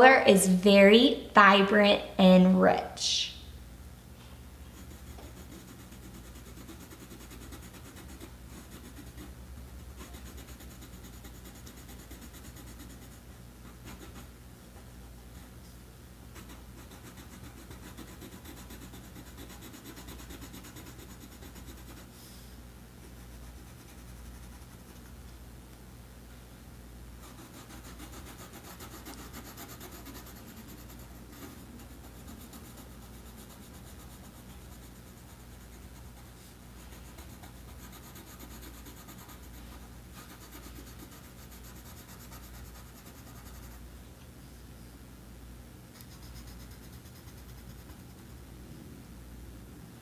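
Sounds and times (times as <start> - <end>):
pencil scratching across paper: 4.7 - 14.3, 16.3 - 22.2, 23.1 - 25.2, 27.2 - 43.8, 46.0 - 48.3.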